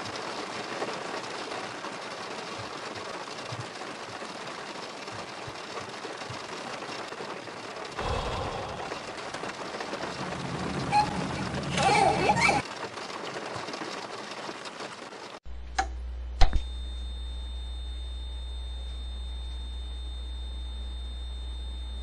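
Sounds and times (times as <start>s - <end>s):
rain falling: 0.0s - 15.4s
deep low rumble: 8.0s - 12.4s.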